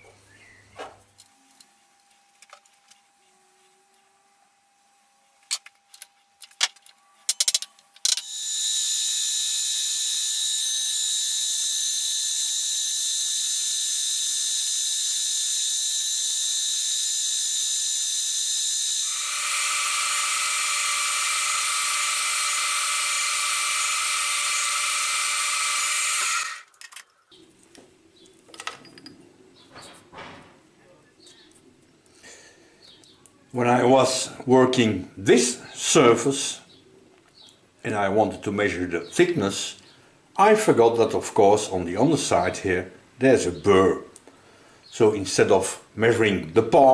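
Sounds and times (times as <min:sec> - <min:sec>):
milling machine whining: 0:07.3 - 0:27.0.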